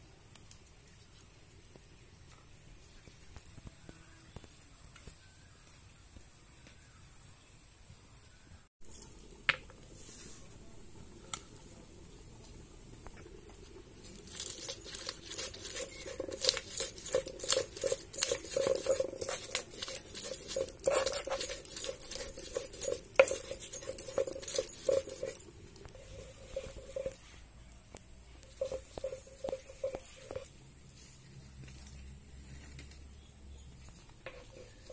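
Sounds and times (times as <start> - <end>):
stone grinding on stone: 13.2 - 27.4, 28.4 - 30.6, 34.2 - 34.9.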